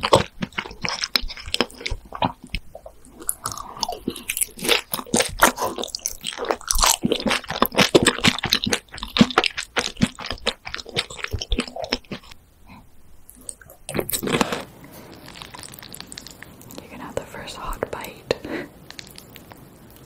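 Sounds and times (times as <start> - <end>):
crunching and chewing fries: 0.0 - 12.4, 13.3 - 16.8.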